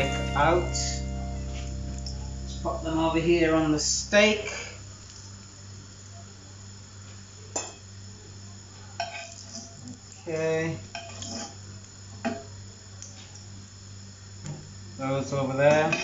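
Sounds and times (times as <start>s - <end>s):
steady low hum: 0.0s - 5.9s.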